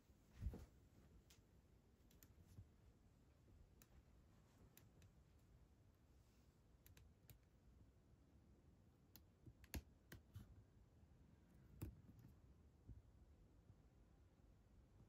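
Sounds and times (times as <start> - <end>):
faint clicks and taps: 0.4 - 2.8, 3.5 - 5.6, 6.8 - 7.6, 9.0 - 10.6, 11.6 - 13.1.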